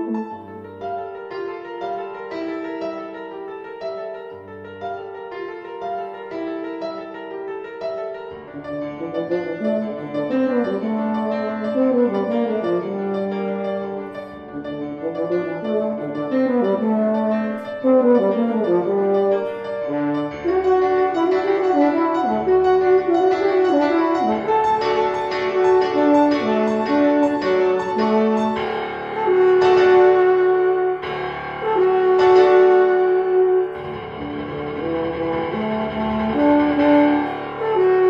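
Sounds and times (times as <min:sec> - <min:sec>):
piano accompaniment: 0:00.0 - 0:38.0
euphonium solo: 0:08.9 - 0:38.0.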